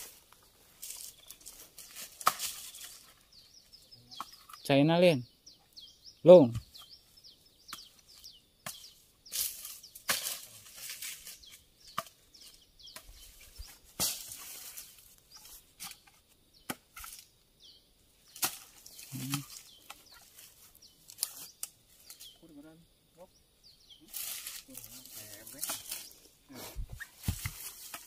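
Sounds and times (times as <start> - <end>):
machete chopping: 2.2 - 2.6
faint bird chirps: 2.5 - 28.0.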